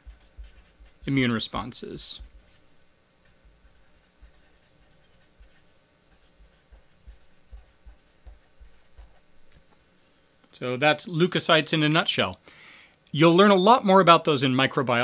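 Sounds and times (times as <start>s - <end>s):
marker scratching on paper: 0.0s - 1.2s, 1.9s - 9.3s.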